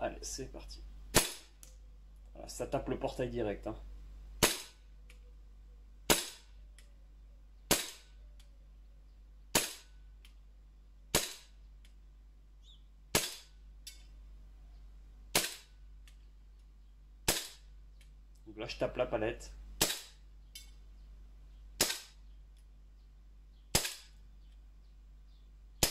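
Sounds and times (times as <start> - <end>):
airsoft pistol shots: 1.1 - 1.6, 4.4 - 4.8, 6.1 - 6.5, 7.7 - 8.1, 9.5 - 9.9, 11.1 - 11.6, 13.1 - 13.6, 15.3 - 15.8, 17.2 - 17.7, 19.8 - 20.2, 21.8 - 22.2, 23.7 - 24.2.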